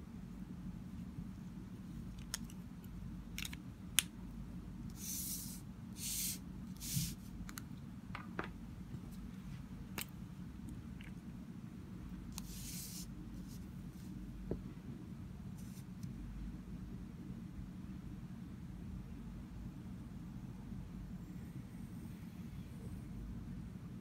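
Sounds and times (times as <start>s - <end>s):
low steady hum: 0.0s - 24.0s
papery swishes of cards sliding: 12.4s - 14.2s.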